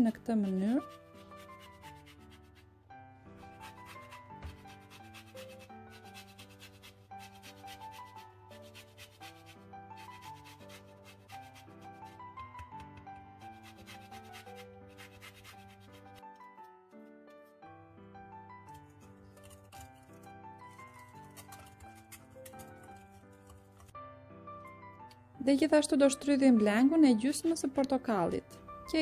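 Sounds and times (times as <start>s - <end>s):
soft background music: 0.0s - 29.0s
grater rasping peel: 0.3s - 2.6s, 3.5s - 12.2s, 13.4s - 16.2s, 18.7s - 23.9s.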